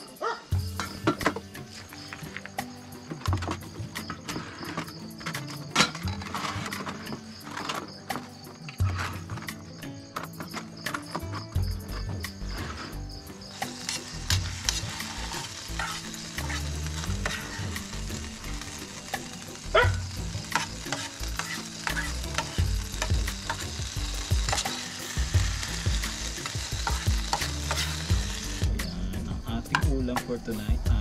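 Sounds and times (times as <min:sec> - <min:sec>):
food sizzling in a pan: 0:00.5 - 0:08.3, 0:12.4 - 0:29.1
utensil scraping against pan: 0:12.5 - 0:17.9, 0:18.6 - 0:28.6.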